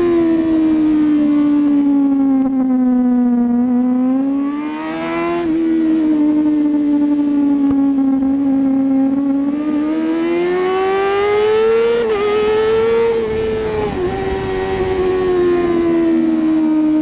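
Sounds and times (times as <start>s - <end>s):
motorcycle engine accelerating: 0.0s - 17.0s
wind rushing: 12.0s - 16.0s.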